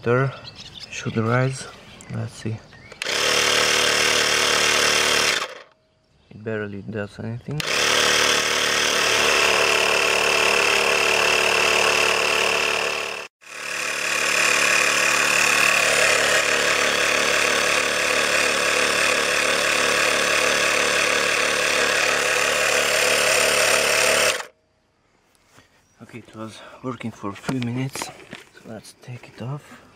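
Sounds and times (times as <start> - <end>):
air compressor buzzing: 2.9 - 5.7, 7.6 - 24.5.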